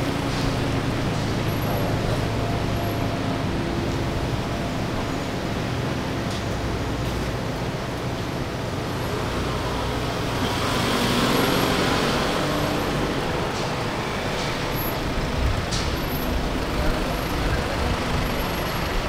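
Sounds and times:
van engine and tyre noise: 0.0s - 19.0s.

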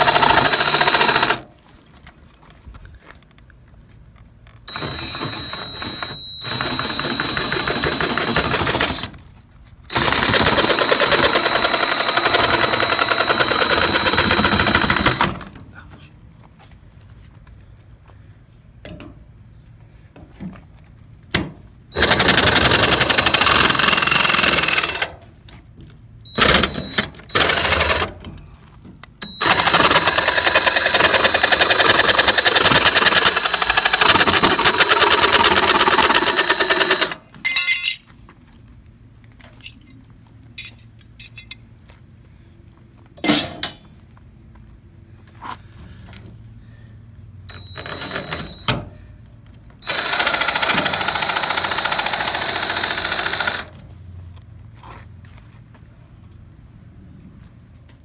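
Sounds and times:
power tool hammering on aluminum: 0.0s - 1.4s, 4.7s - 9.2s, 9.9s - 15.4s, 22.0s - 25.2s, 29.2s - 37.2s, 49.8s - 53.7s.

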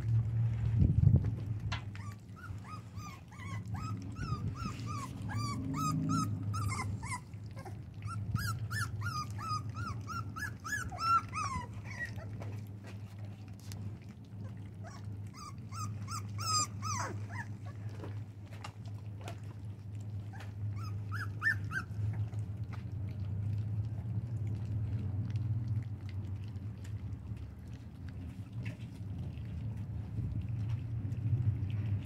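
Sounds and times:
puppies lapping food: 0.0s - 32.0s
puppies whimpering and yipping: 1.8s - 12.8s, 14.3s - 18.2s, 19.2s - 22.6s.

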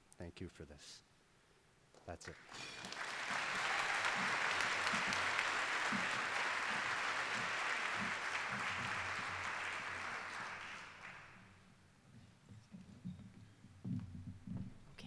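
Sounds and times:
audience applauding: 2.2s - 11.6s.

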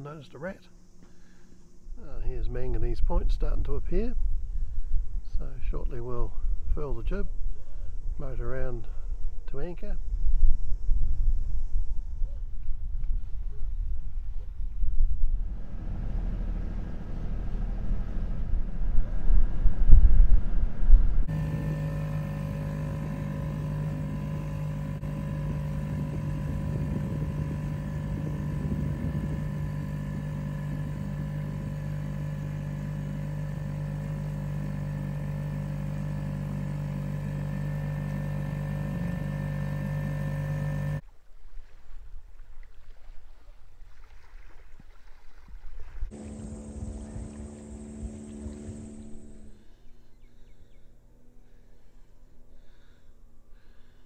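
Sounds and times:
outboard motor running: 0.4s - 9.7s, 15.4s - 41.7s, 42.3s - 54.0s
wind buffeting microphone: 9.1s - 31.9s
water lapping: 41.1s - 50.6s.

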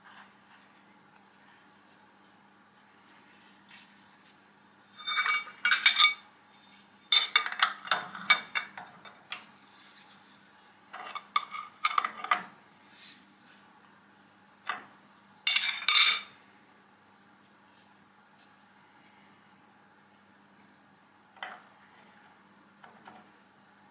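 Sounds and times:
steel parts clinking on vise: 5.0s - 6.4s, 15.5s - 16.3s.

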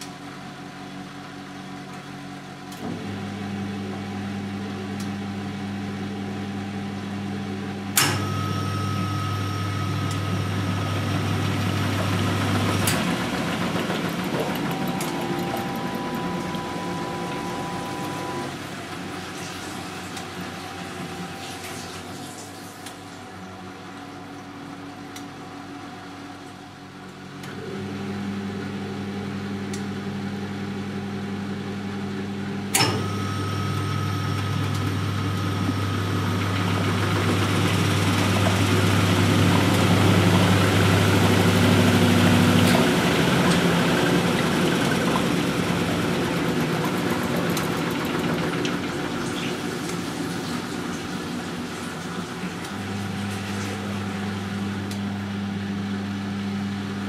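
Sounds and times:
washing machine hum: 0.0s - 57.0s
washing machine drum spinning: 1.1s - 27.0s, 31.1s - 56.0s
relay click: 8.0s - 8.4s.

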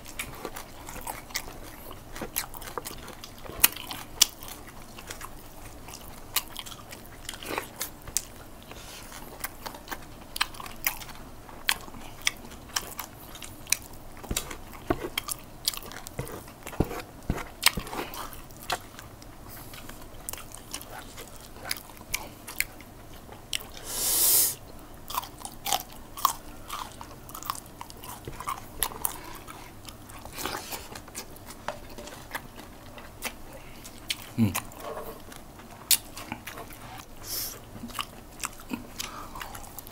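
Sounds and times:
wet chewing and lip smacking: 0.0s - 23.8s, 25.1s - 39.9s
loud hiss: 23.8s - 24.6s.

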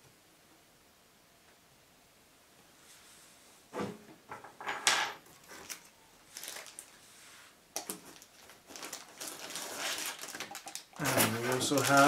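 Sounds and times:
plastic packaging crinkling: 5.3s - 7.0s, 7.8s - 12.0s.

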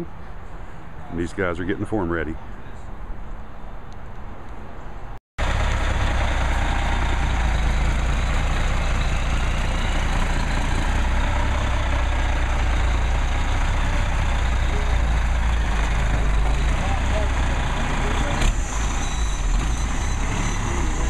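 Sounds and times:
diesel truck engine running: 5.4s - 21.0s.

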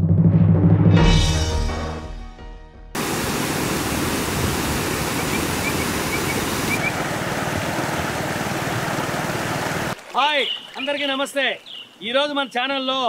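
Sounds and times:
water rushing over a weir: 3.0s - 10.2s.

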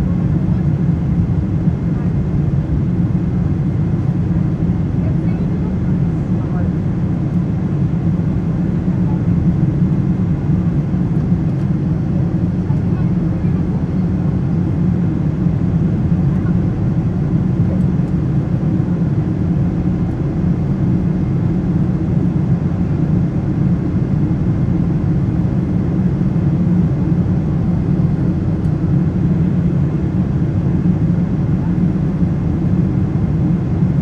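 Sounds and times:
airplane cabin engine rumble: 0.0s - 34.0s.

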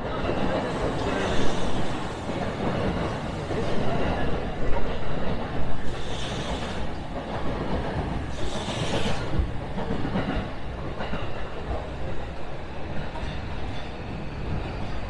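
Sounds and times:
brief hissing: 8.3s - 9.4s.

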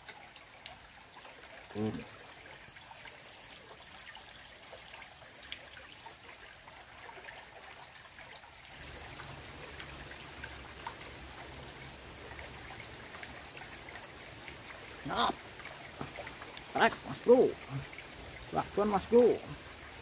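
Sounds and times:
stream trickling among rocks: 0.0s - 20.0s
water drips and splashes: 0.0s - 20.0s.

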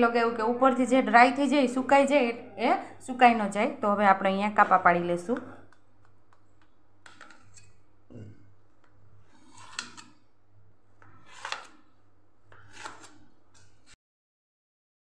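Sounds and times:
knife scraping steel pan: 7.2s - 7.8s, 9.2s - 10.3s, 11.0s - 11.9s, 12.5s - 14.0s.

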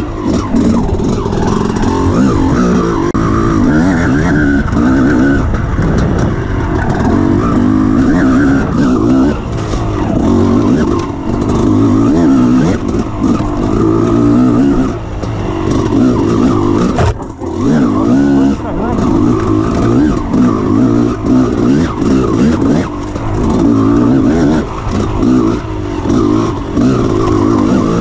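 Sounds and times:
motorcycle engine revving: 0.0s - 28.0s
knocks and rattles from bumps: 16.8s - 17.7s.

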